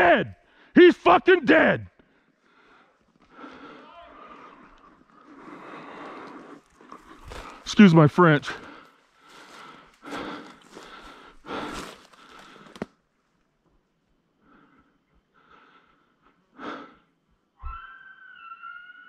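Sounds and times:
person breathing heavily: 2.1s - 7.7s, 8.5s - 12.8s, 14.4s - 17.2s
whistled elk call: 17.6s - 19.0s.

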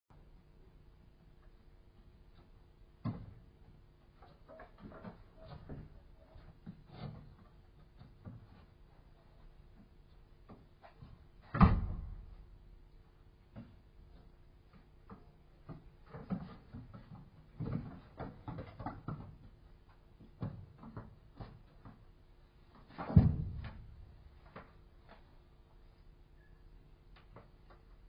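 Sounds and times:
paws thumping on wooden planks: 13.5s - 22.1s.

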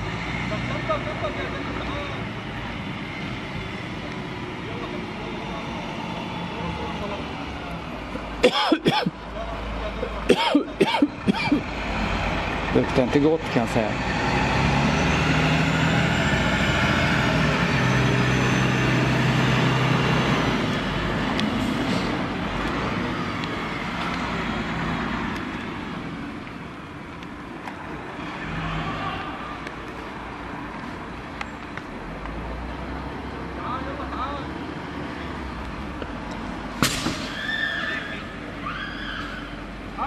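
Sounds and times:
fire engine driving: 0.0s - 40.0s.

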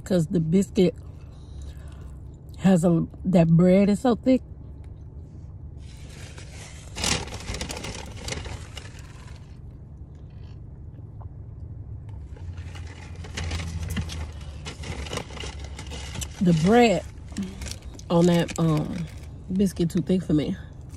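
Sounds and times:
low rumble of a car: 0.0s - 20.9s
paper wrapper crinkling: 5.8s - 9.6s, 12.3s - 19.3s.

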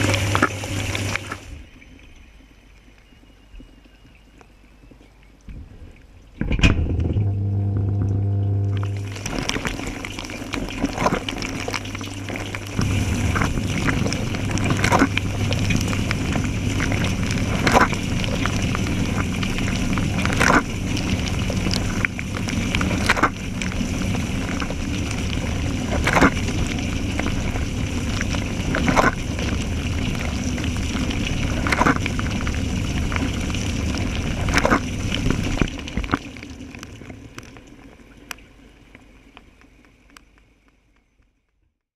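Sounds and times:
dishwasher pump humming: 0.0s - 1.6s, 6.4s - 36.0s
water spraying over plates: 0.0s - 1.6s, 7.3s - 38.7s
sharp water splash: 8.6s - 37.4s.

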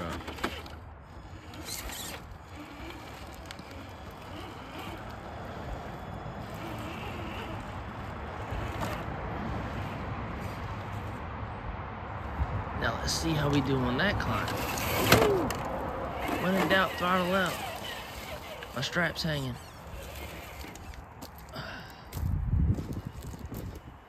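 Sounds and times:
toy car motor whirring: 0.0s - 11.2s, 14.2s - 21.2s.

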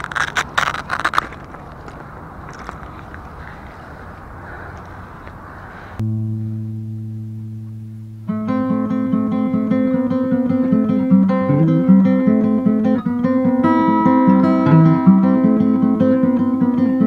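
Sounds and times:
acoustic guitar music: 6.0s - 17.0s.

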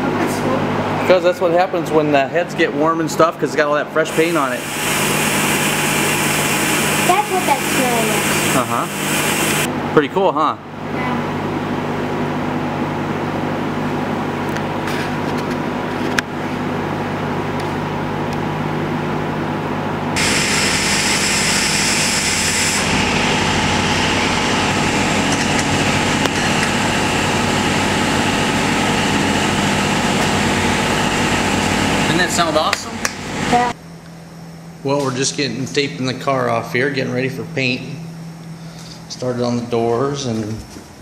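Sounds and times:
hiss: 4.2s - 9.7s, 20.2s - 22.8s.

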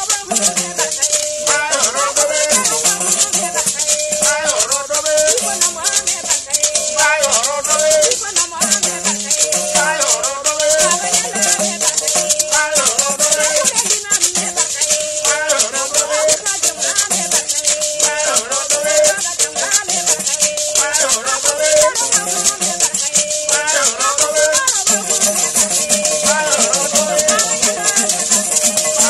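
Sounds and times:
gourd lute playing: 0.0s - 29.0s
gourd rattles shaken: 0.0s - 29.0s
person singing: 0.0s - 29.0s.

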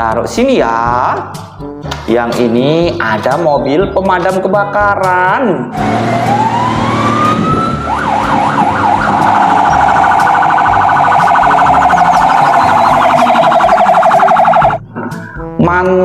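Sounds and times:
toy electronic siren: 5.8s - 14.8s.

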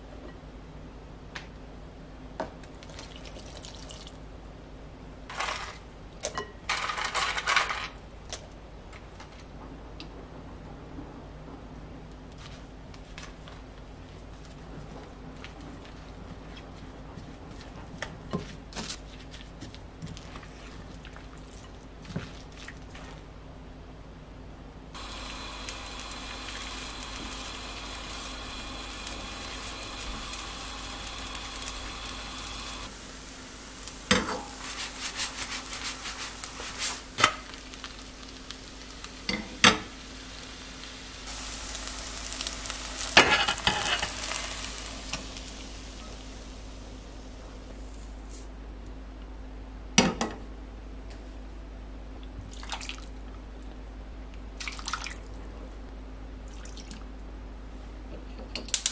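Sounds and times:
batter sizzling in frying pan: 25.0s - 48.5s.

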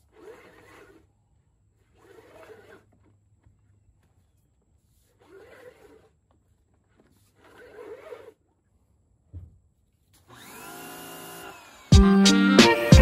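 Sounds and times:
recoil starter cord swish: 0.0s - 1.0s.

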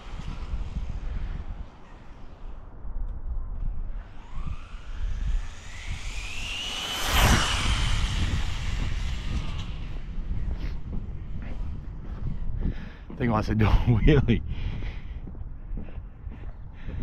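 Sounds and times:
wind rumbling on microphone: 0.0s - 17.0s
rc car electric motor whine: 3.9s - 10.2s.

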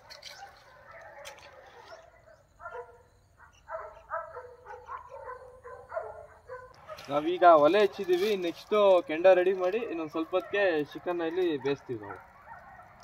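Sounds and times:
dog barking: 0.1s - 7.2s, 9.8s - 13.0s.

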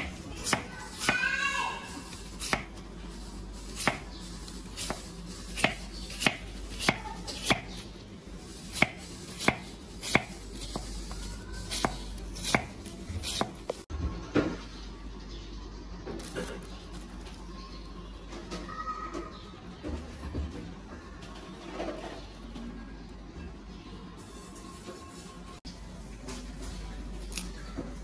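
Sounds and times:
knife chopping on wooden board: 0.0s - 1.3s, 2.4s - 2.8s, 3.8s - 4.1s, 4.8s - 7.8s, 8.6s - 11.0s, 11.7s - 13.8s.

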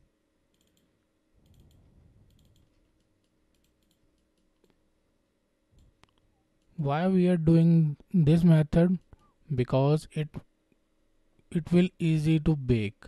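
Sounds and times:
mouse and keyboard clicks: 0.5s - 4.8s.

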